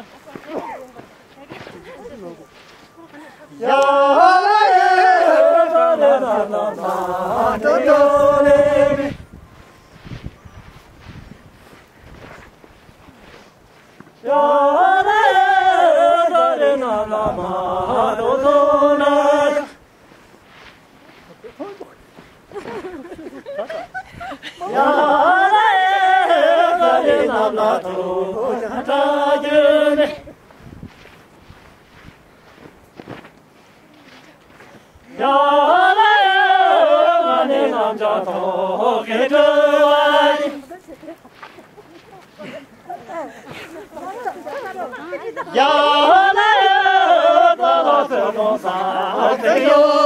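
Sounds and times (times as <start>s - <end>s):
person singing unaccompanied: 3.0s - 9.4s, 14.2s - 19.9s, 24.4s - 30.4s, 35.1s - 41.4s, 42.2s - 50.0s.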